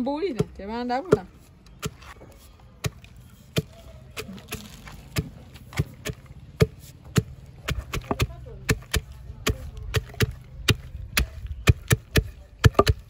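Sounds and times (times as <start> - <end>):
pestle pounding in mortar: 2.8 - 13.0.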